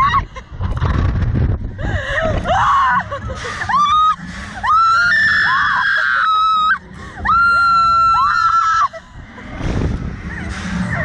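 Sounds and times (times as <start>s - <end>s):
low rumble: 0.0s - 11.0s
woman screaming: 2.5s - 9.0s.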